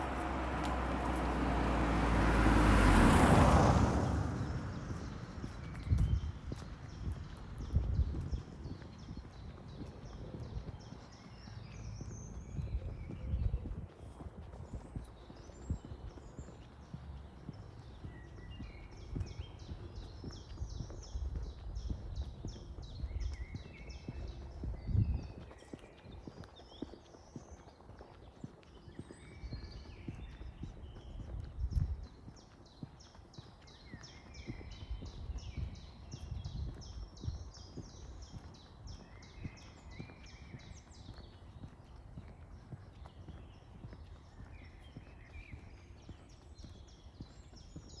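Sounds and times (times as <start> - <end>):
footsteps walking: 0.0 - 1.6, 4.1 - 29.0
songbird singing: 0.0 - 48.0.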